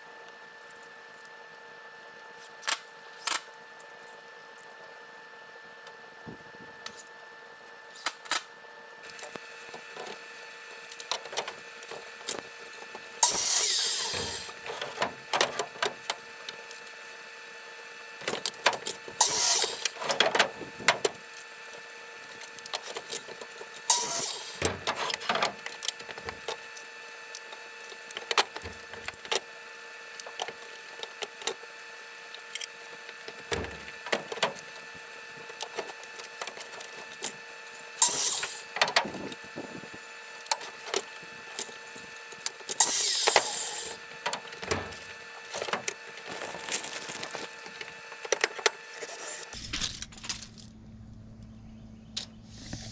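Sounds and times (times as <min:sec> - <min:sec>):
faint steady hum: 0:00.0 - 0:52.9.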